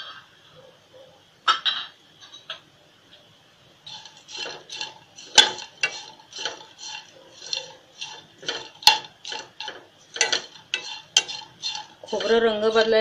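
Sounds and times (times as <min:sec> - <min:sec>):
spatula scraping pan: 0:03.8 - 0:13.0
spatula knocking on pan: 0:03.9 - 0:13.0.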